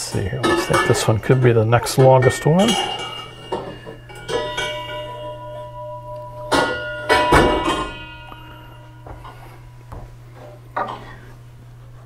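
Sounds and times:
chime tubes clinking and ringing: 0.4s - 9.8s.

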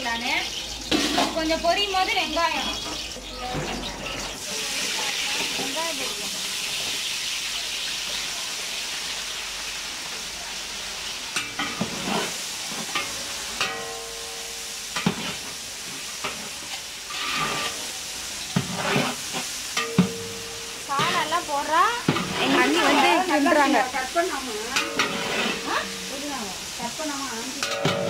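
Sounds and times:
onions sizzling in oil: 0.0s - 28.0s
metal ladle scraping pot: 0.8s - 1.5s, 11.4s - 13.9s, 16.2s - 23.9s, 24.5s - 26.5s.

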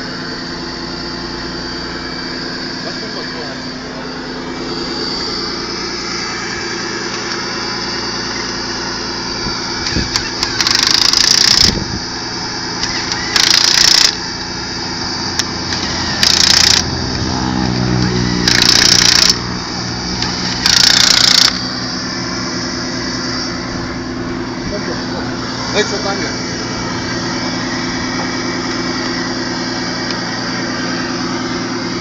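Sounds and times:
engine running: 0.0s - 32.0s
impact wrench rattling: 9.9s - 11.8s, 12.8s - 14.3s, 15.4s - 16.9s, 18.4s - 19.4s, 20.2s - 21.6s.

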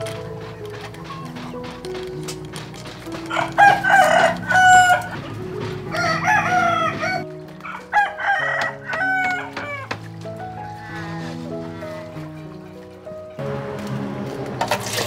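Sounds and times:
roosters crowing: 3.2s - 10.0s.

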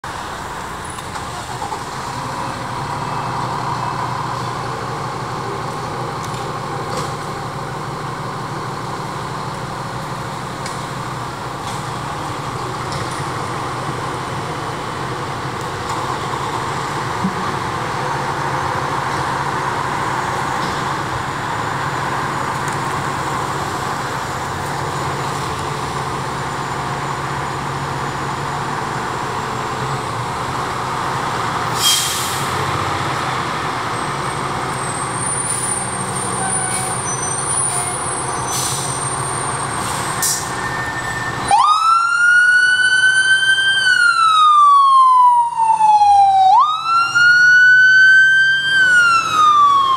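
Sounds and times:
diesel engines idling: 0.0s - 49.9s
fire engine siren wailing: 40.5s - 49.9s.

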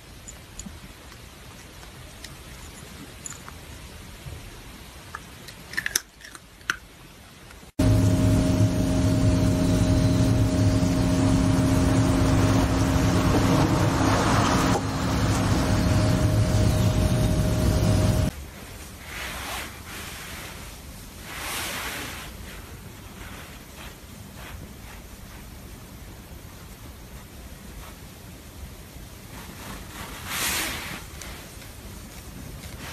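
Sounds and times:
machine hum: 7.8s - 18.3s.

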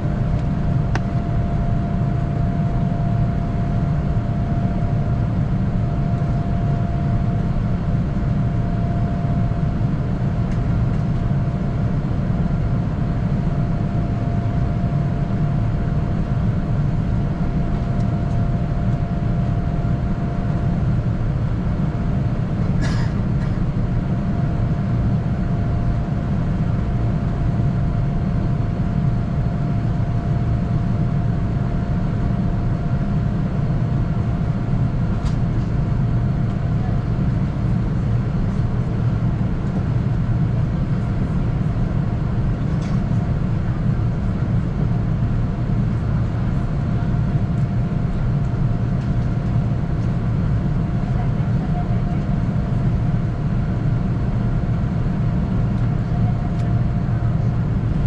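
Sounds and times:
airliner cabin rumble: 0.0s - 58.0s.

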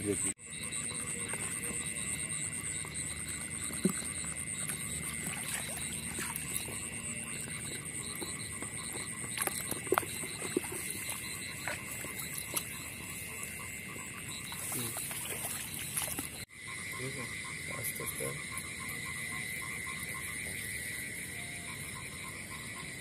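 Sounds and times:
frogs calling: 0.0s - 23.0s
water splashing: 0.9s - 16.5s.

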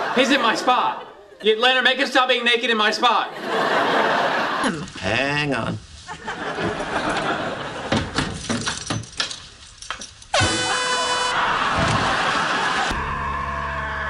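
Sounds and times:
air horn blast: 10.4s - 11.4s.

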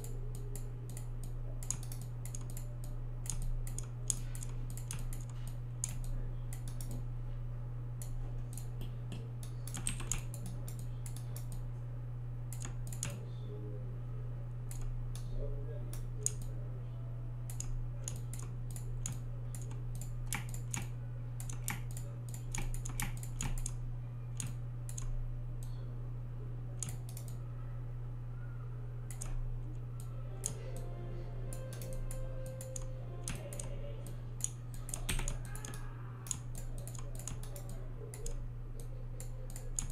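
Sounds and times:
mouse and keyboard clicking: 0.0s - 7.0s, 17.5s - 23.8s, 26.8s - 27.4s, 29.1s - 29.4s, 34.4s - 39.9s
steady low hum: 0.0s - 39.9s.

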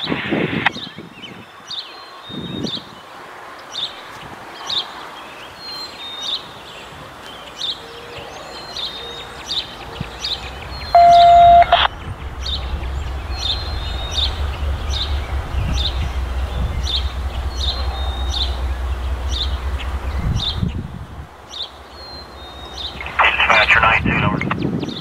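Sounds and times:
songbirds chirping: 0.7s - 25.0s
diesel locomotive rumble: 8.6s - 24.6s
loud train horn note: 9.8s - 23.2s.

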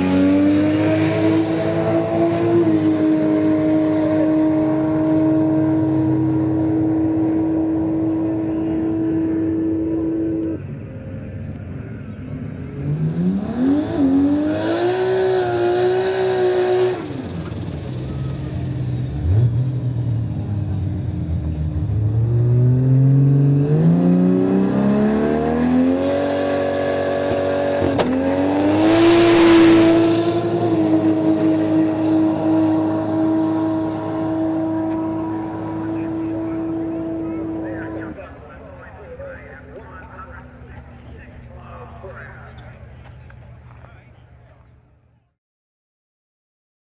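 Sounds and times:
car engine revving: 0.0s - 44.0s
sharp crack: 27.9s - 28.2s.

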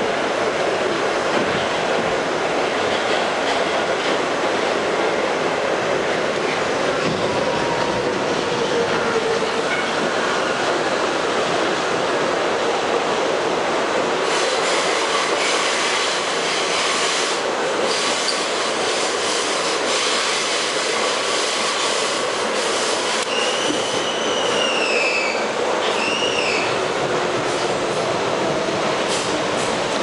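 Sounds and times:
subway wheels rumbling on rail: 0.0s - 30.0s
faint wheel squeal: 23.2s - 26.8s.

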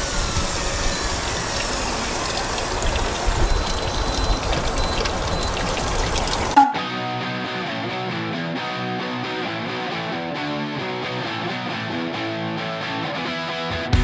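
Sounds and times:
water noise: 0.0s - 6.8s.

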